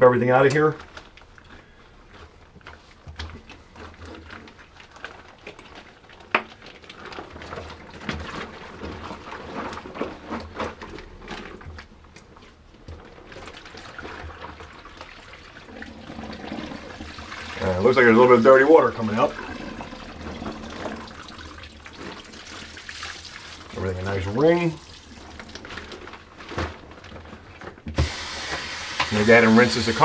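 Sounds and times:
wash bag handling noises: 0:00.2 - 0:30.0
water pouring into a sink: 0:13.2 - 0:27.1, 0:28.0 - 0:30.0.

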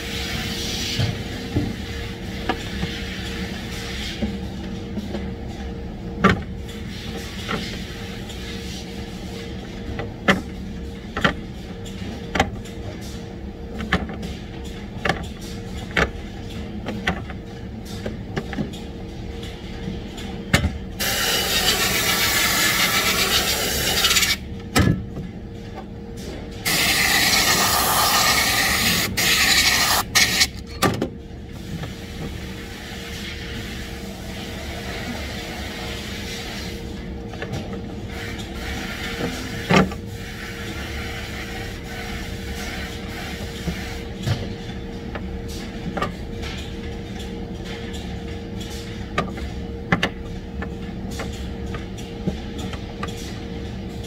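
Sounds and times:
factory hum: 0:00.0 - 0:54.0
compressed air hissing: 0:21.0 - 0:24.4, 0:26.7 - 0:30.4.

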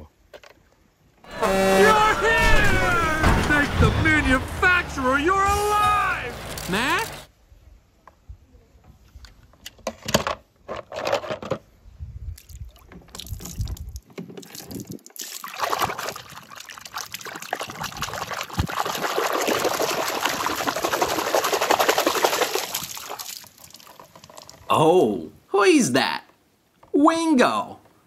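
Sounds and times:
water pouring: 0:12.4 - 0:24.7.

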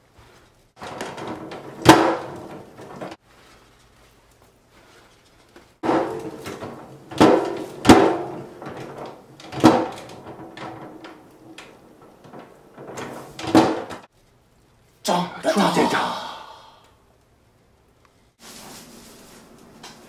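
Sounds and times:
plastic trash can lid clunking: 0:00.8 - 0:03.2, 0:05.8 - 0:14.0.

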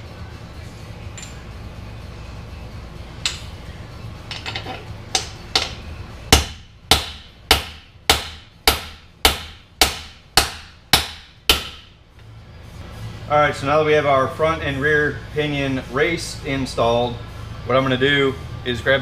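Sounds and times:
hammer striking metal: 0:03.2 - 0:03.6, 0:04.3 - 0:11.9.

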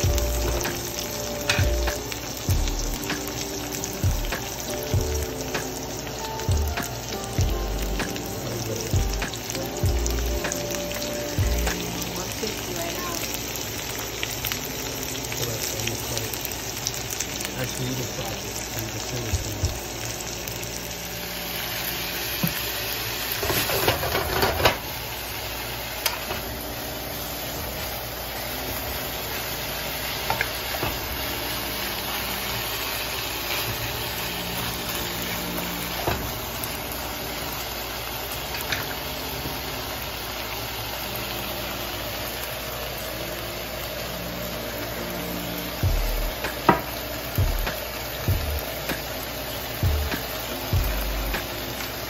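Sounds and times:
vegetables sizzling in a wok: 0:00.0 - 0:52.0
spatula scraping and clattering: 0:23.4 - 0:24.8.

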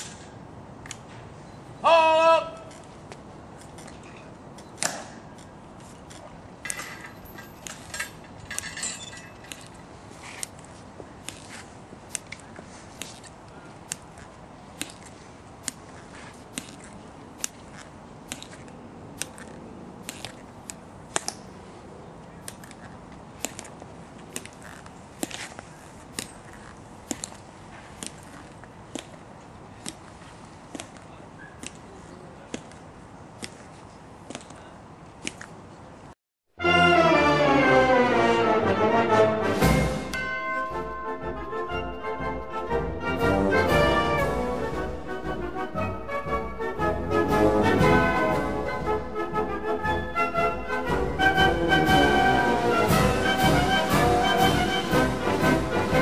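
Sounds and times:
marching footsteps clicking: 0:39.6 - 0:56.0.

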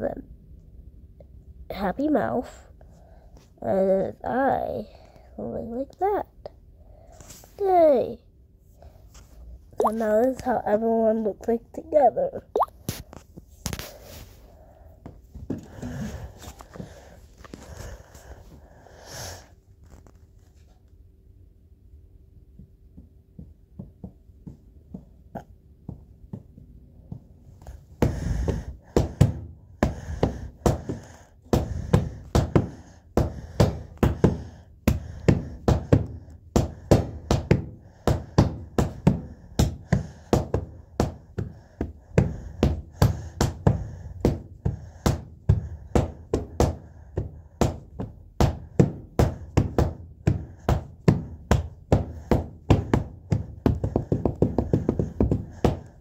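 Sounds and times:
rhythmic sharp knocking: 0:28.0 - 0:56.0.

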